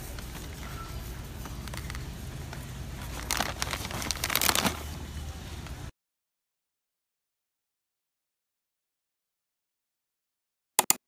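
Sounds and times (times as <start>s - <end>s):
steady low hum: 0.0s - 5.9s
snack bag crinkling: 1.6s - 2.0s, 3.0s - 5.0s.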